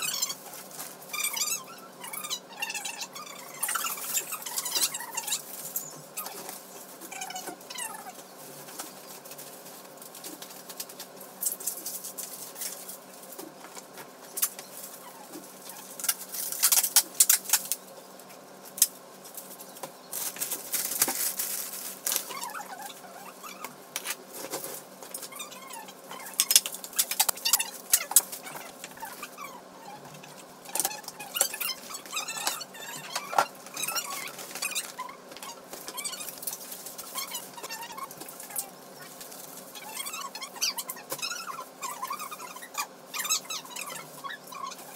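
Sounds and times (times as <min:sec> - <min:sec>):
plastic bags rustling and crinkling: 0:03.6 - 0:13.5, 0:19.1 - 0:23.3, 0:33.4 - 0:40.5.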